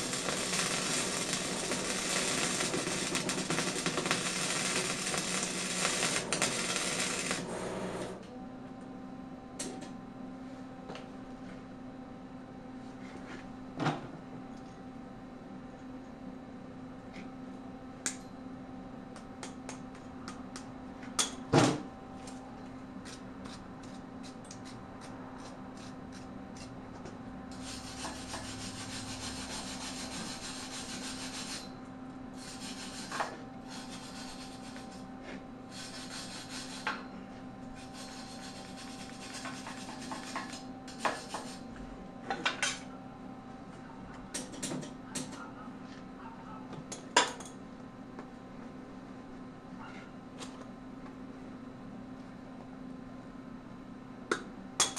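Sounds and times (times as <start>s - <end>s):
wire brush scrubbing metal: 0.0s - 7.7s, 37.9s - 40.4s
steady hum: 0.0s - 21.0s.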